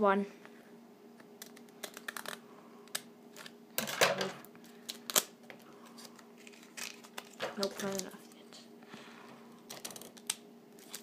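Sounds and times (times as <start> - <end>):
plastic crinkling: 4.6 - 8.4, 9.6 - 11.0.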